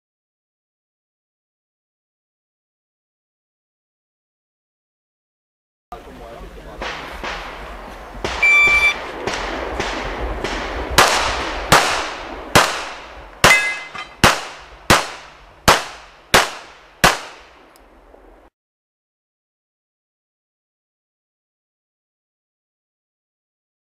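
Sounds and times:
shot timer beep: 8.4s - 9.0s.

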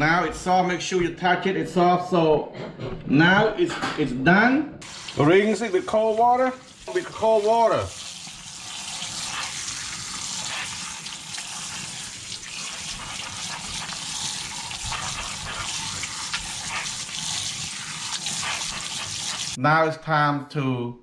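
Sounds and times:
faucet running into a colander: 4.8s - 19.6s.

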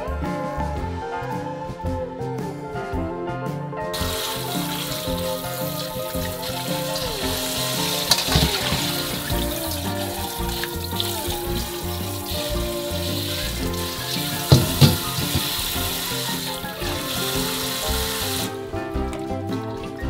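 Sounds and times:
background music: 0.0s - 20.0s
tap water splashing into bowl: 4.0s - 11.6s, 13.7s - 18.5s
sharp knocks: 14.5s - 15.8s.

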